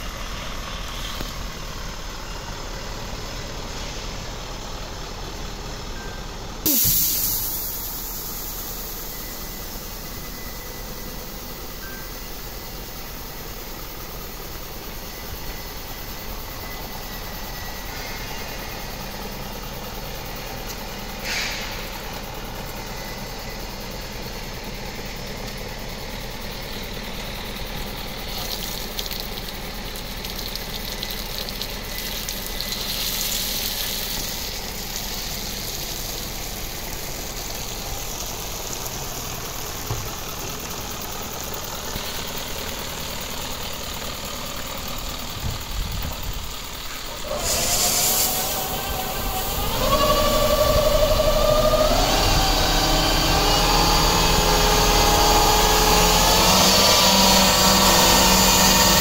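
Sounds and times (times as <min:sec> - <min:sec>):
diesel engine idling: 0:00.0 - 0:59.0
short hiss: 0:06.7 - 0:09.6, 0:21.2 - 0:21.9, 0:46.9 - 0:49.6.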